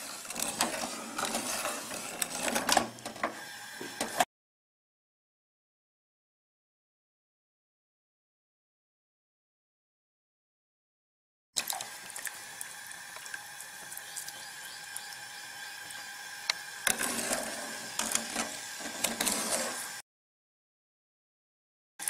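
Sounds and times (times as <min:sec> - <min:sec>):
liquid splashing: 0:11.6 - 0:14.4.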